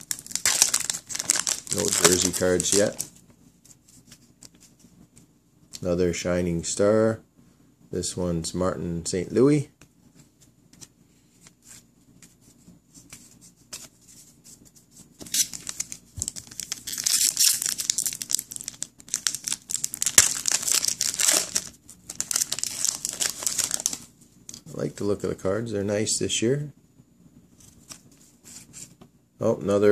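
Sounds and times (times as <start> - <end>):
foil wrapper tearing and crinkling: 0.0 - 3.1, 15.2 - 24.0.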